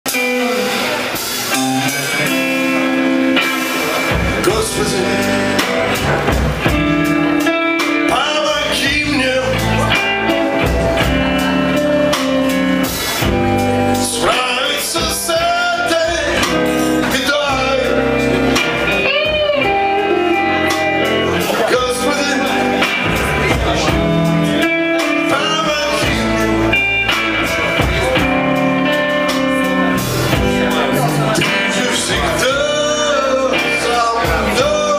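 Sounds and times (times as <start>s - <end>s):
electric guitars: 0.0s - 34.9s
man singing into microphone: 3.9s - 6.1s, 8.0s - 10.8s, 14.0s - 28.2s, 30.4s - 34.9s.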